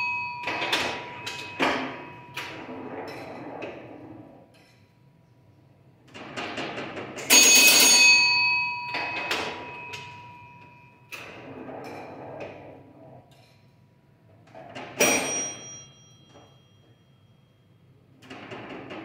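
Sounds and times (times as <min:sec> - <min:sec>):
pinball bell ringing: 0:00.0 - 0:03.5, 0:07.1 - 0:11.6, 0:14.9 - 0:18.1
pinball machine clattering: 0:00.0 - 0:04.8, 0:05.9 - 0:13.6, 0:14.3 - 0:17.0, 0:17.9 - 0:19.0.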